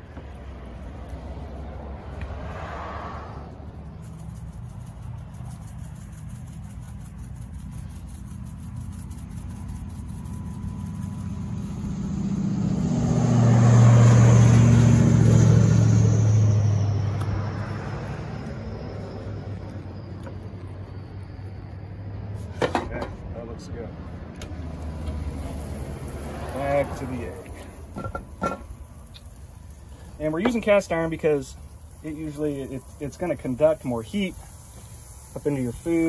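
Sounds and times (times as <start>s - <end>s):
vehicle engine driving past: 0.0s - 36.0s
steady low rumble: 3.2s - 35.9s
high whine dropping in pitch: 11.2s - 21.5s.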